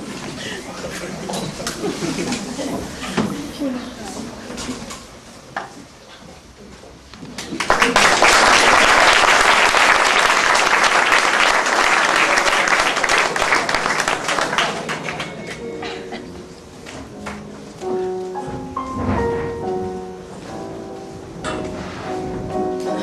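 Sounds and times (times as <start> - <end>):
audience applauding: 7.4 - 15.7.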